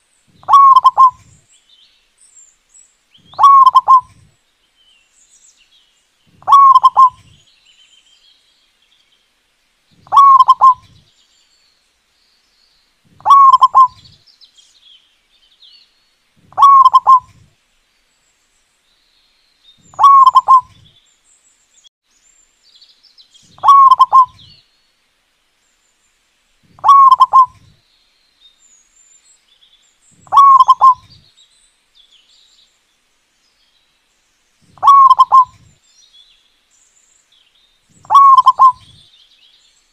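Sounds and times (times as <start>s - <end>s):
faint high bird chirps: 0.0s - 1.7s, 2.3s - 9.1s, 9.9s - 14.8s, 15.5s - 17.5s, 19.2s - 24.8s, 26.7s - 32.7s, 34.6s - 39.9s
dove cooing: 0.4s - 1.4s, 3.3s - 4.3s, 6.3s - 7.4s, 10.0s - 11.0s, 13.1s - 14.1s, 16.4s - 17.5s, 19.9s - 20.8s, 23.6s - 24.4s, 26.7s - 27.7s, 30.3s - 31.2s, 34.7s - 35.7s, 38.0s - 39.0s.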